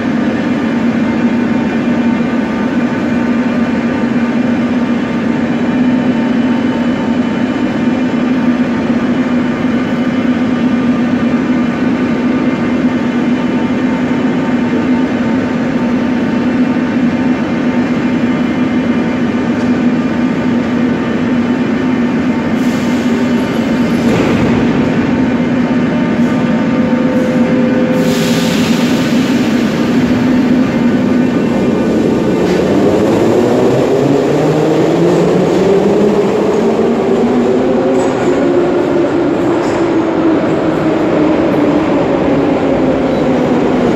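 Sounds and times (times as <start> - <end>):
train electrical hum: 0.0 - 43.9.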